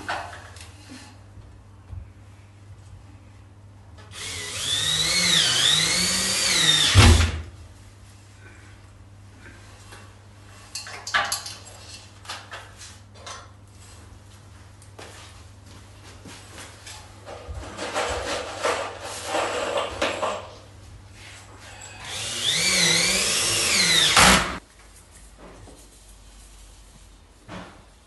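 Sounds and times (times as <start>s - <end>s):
cordless drill motor whine: 4.2s - 7.0s, 21.9s - 24.6s.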